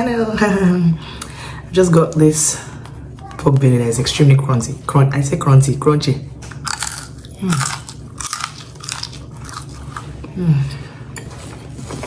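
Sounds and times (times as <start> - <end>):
crunchy chewing: 6.5 - 10.3.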